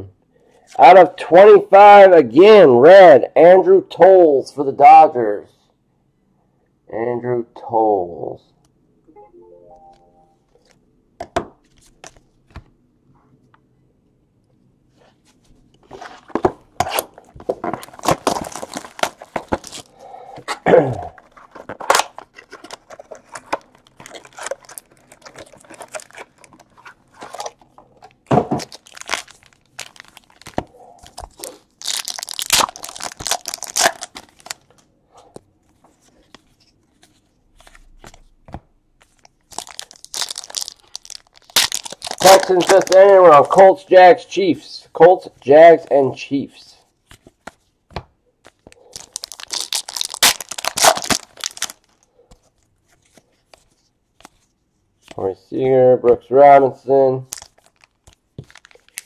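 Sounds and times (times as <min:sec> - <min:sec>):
cardboard crunching and ripping: 0:15.9 - 0:19.9, 0:20.8 - 0:27.6, 0:28.4 - 0:34.6, 0:39.5 - 0:43.1, 0:49.0 - 0:51.9
wrapper crinkling and tearing: 0:16.9 - 0:20.0, 0:21.0 - 0:34.9, 0:39.1 - 0:43.6, 0:48.7 - 0:52.1, 0:57.2 - 0:59.0.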